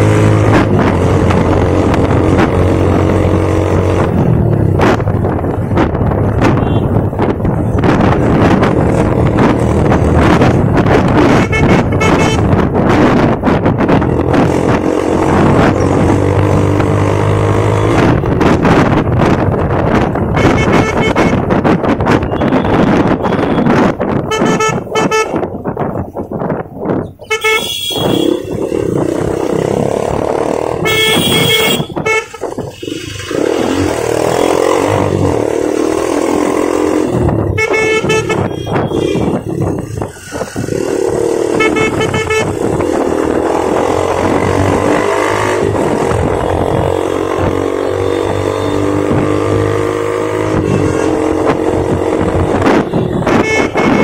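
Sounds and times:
motorcycle engine: 0.0s - 26.2s, 27.0s - 54.0s
vehicle horns honking: 6.4s - 7.1s, 11.2s - 12.6s, 20.3s - 21.5s, 22.2s - 25.5s, 27.2s - 28.6s, 30.7s - 33.0s, 37.5s - 39.8s, 41.5s - 42.9s, 50.4s - 51.6s, 52.4s - 54.0s.

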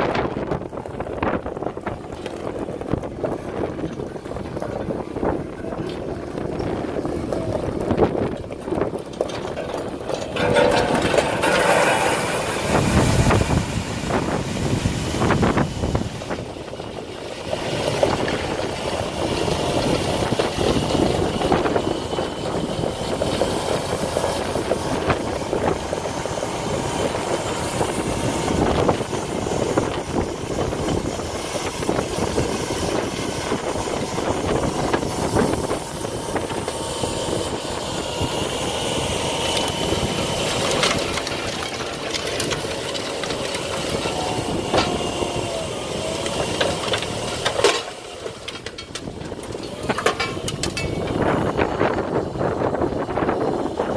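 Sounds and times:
diesel engine under load: 0.0s - 53.9s
snowblower churning snow: 0.0s - 53.9s.

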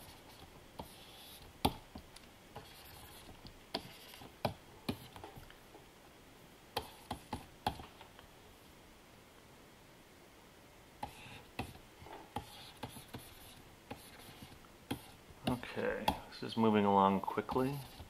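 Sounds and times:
faint scratchy pen strokes: 2.6s - 4.3s, 11.0s - 15.7s, 17.2s - 18.0s.

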